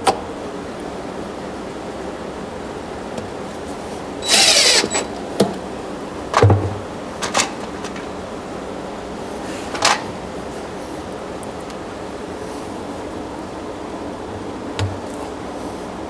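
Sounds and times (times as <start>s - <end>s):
steady shop hiss: 0.0s - 16.0s
cordless drill whir: 4.2s - 5.2s.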